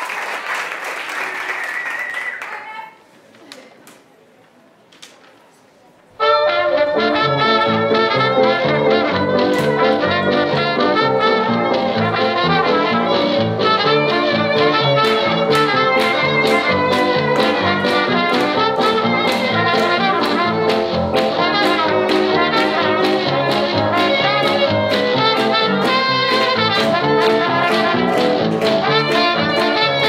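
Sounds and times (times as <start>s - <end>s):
swing jazz with brass: 6.2s - 30.0s.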